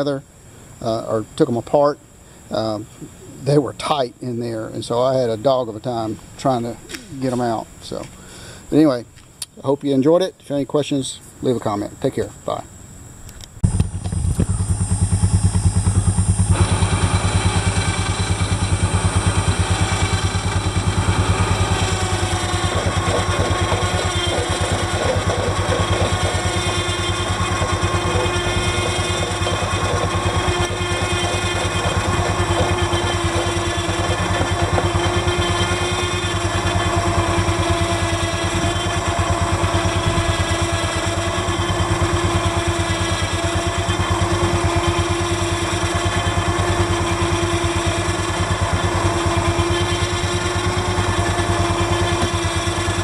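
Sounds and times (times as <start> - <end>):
engine running steadily: 13.4 - 53.0.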